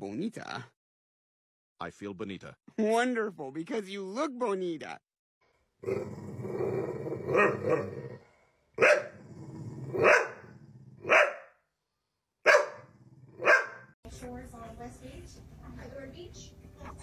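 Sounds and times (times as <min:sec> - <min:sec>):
dog barking: 0:07.3 - 0:08.0, 0:08.8 - 0:09.2, 0:10.0 - 0:11.6, 0:12.4 - 0:13.9.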